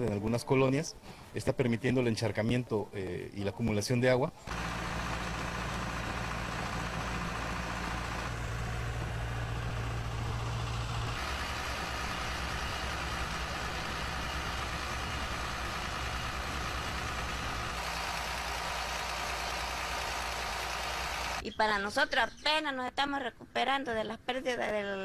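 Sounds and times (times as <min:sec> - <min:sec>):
pump engines running: 0:04.5 - 0:21.4.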